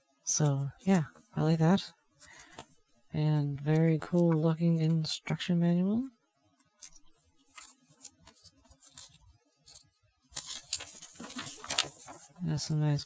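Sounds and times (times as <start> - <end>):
paper booklet rustling: 6.6 - 13.0
paper taps and rustles: 6.8 - 12.4.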